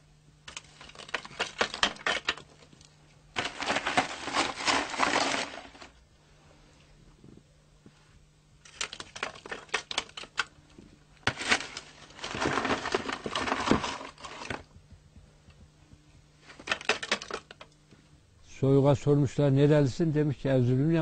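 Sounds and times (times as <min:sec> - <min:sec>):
faint low hum: 0:00.0 - 0:21.0
rough scraping: 0:03.4 - 0:06.0, 0:11.2 - 0:14.6.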